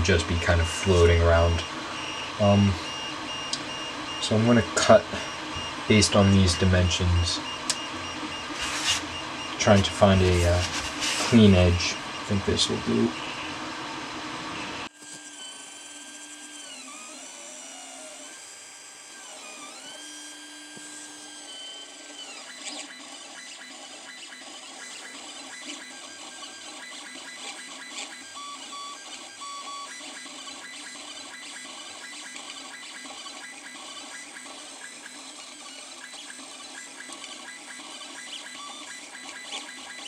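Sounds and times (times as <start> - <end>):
stepper motors whining: 0.0 - 40.0.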